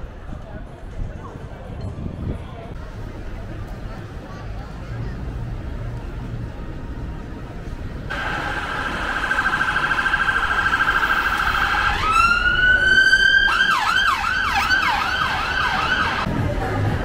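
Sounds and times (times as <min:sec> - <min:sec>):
city traffic: 0:00.0 - 0:17.0
emergency vehicle siren: 0:08.1 - 0:16.3.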